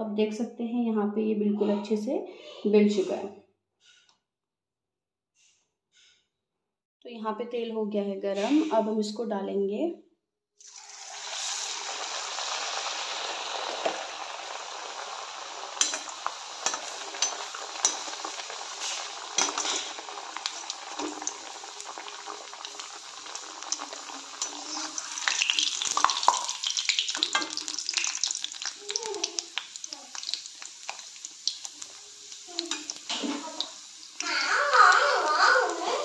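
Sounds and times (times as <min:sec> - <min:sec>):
deep-frying sizzle in hot oil: 0:10.6 - 0:36.0
metal spoon clicking against pan: 0:15.8 - 0:18.1.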